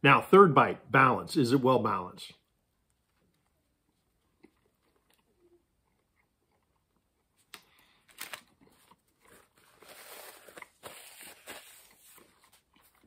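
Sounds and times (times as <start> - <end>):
faint chewing: 2.8 - 9.6
paper napkin rustling: 9.3 - 12.7.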